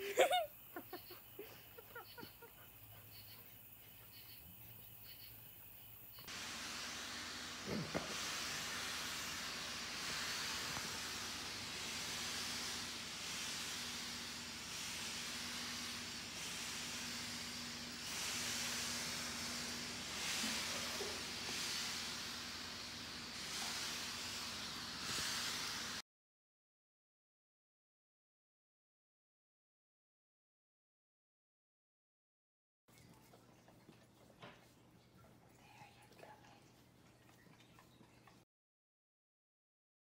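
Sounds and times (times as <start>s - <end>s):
steam mop hissing: 0.1s - 2.4s, 6.2s - 26.0s.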